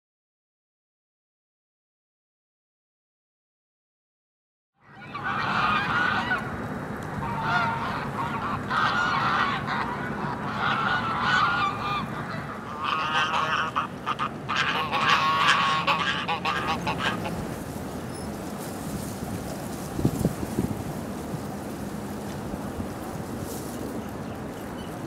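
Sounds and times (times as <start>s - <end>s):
geese honking: 4.8s - 18.3s.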